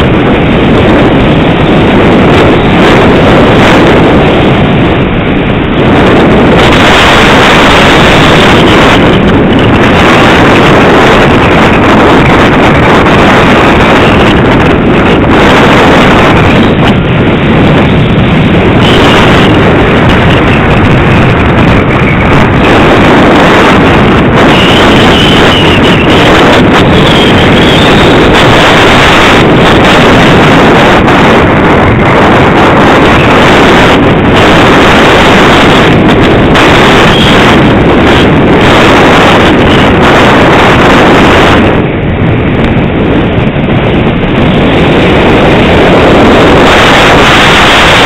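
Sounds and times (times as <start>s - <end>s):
wind buffeting microphone: 0.0s - 48.0s
faint high whine: 4.8s - 30.2s.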